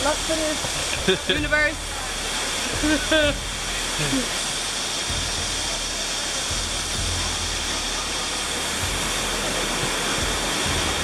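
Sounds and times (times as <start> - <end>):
stream water rushing over boulders: 0.0 - 11.0.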